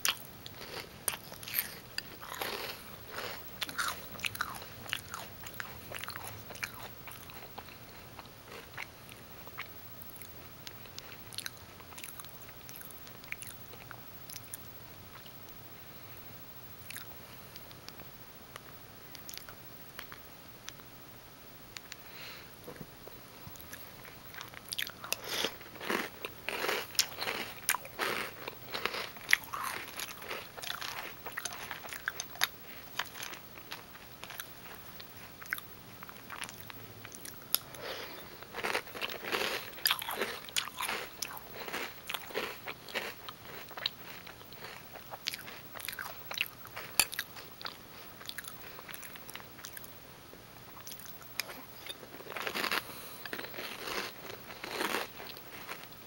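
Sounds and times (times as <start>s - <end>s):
chewing crunchy cereal: 0.0s - 15.4s, 18.6s - 20.2s, 23.5s - 49.9s, 50.7s - 56.0s.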